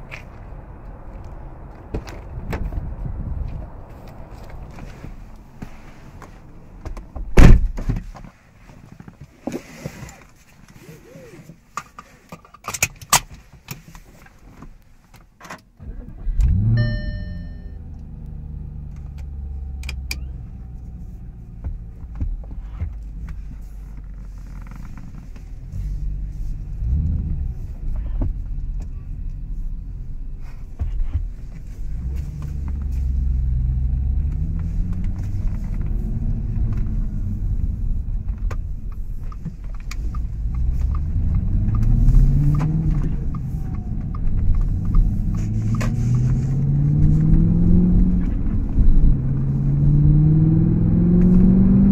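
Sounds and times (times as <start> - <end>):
car engine revving: 15.8 - 23.6, 31.1 - 51.9
short beep: 16.6 - 17.9.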